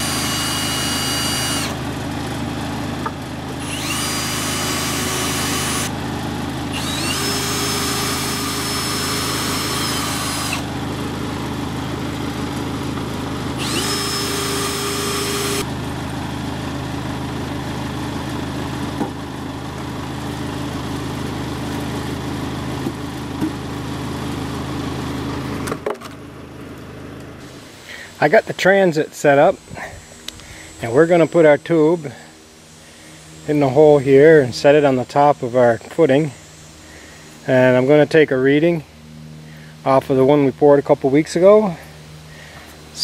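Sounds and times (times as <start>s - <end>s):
power drill backing out screws: 0.0s - 1.9s, 3.0s - 6.0s, 6.6s - 10.8s, 12.4s - 15.8s
steady engine hum: 0.0s - 43.0s.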